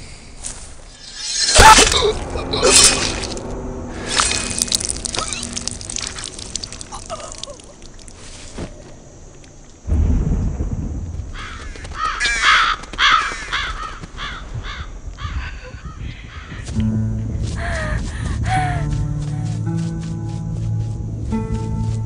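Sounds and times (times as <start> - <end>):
deep thunder-like rumble: 9.9 - 12.2
crows cawing: 11.3 - 16.8.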